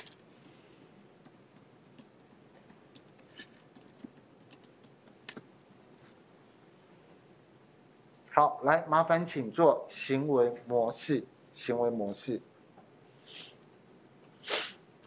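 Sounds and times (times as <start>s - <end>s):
faint keyboard typing: 1.2s - 6.2s.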